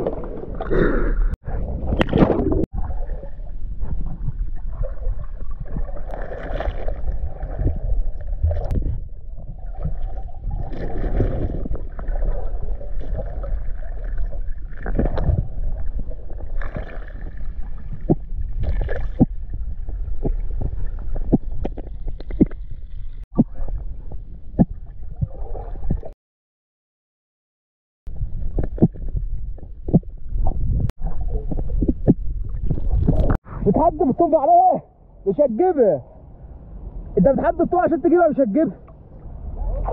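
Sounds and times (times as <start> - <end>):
low rumbling underwater noise: 0.0 - 26.2, 28.1 - 33.9, 36.0 - 37.9, 38.8 - 39.9
water gurgling: 0.0 - 26.2.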